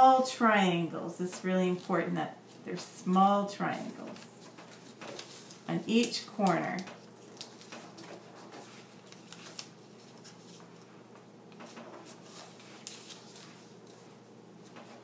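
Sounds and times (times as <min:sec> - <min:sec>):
paper rustling and crinkling: 0:03.7 - 0:15.0.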